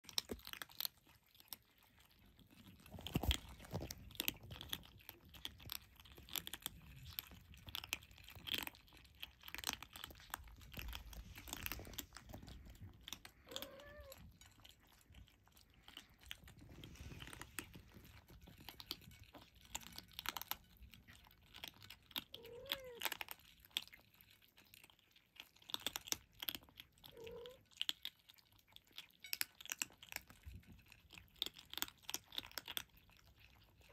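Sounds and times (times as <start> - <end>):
kittens crunching dry kibble: 0.0 - 33.9
kitten squeaks: 13.4 - 14.2.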